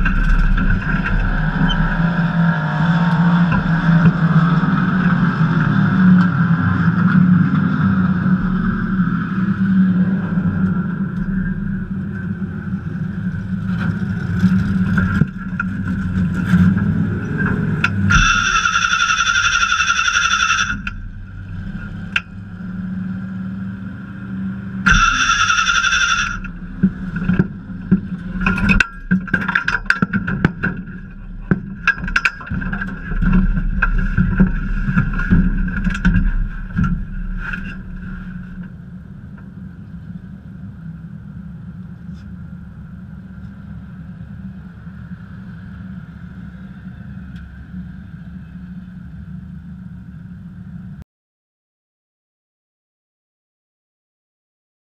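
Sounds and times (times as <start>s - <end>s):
sharp knocks and rattles: 0.0s - 4.4s, 13.3s - 22.5s, 24.9s - 38.8s
passing car engine: 0.0s - 28.8s
race car engine running: 0.0s - 50.9s.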